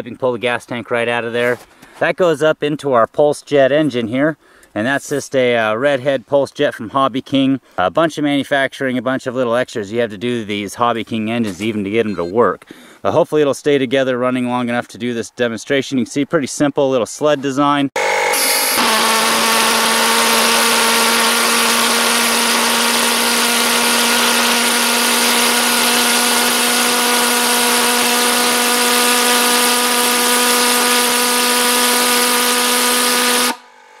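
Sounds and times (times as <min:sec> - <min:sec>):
pulsejet engine buzzing drone: 0:18.0 - 0:34.0.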